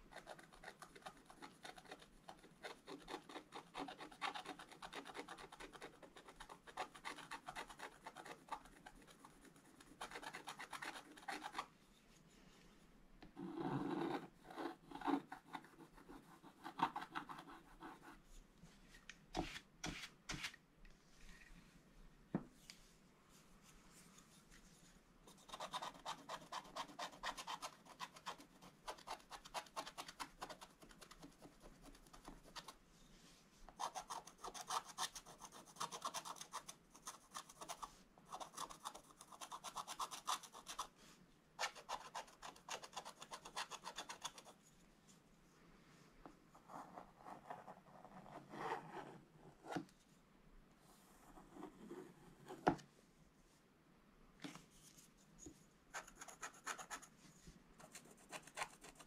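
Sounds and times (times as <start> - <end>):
stylus scratching paper: 0.1 - 11.7, 25.3 - 32.8, 33.8 - 40.9, 41.6 - 44.6, 55.9 - 57.1, 57.8 - 59.0.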